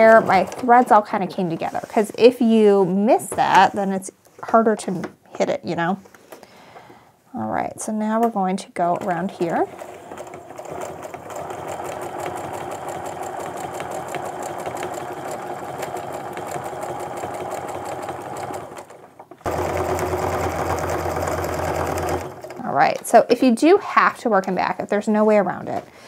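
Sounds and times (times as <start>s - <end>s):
sewing machine stitching: 9.0s - 22.7s.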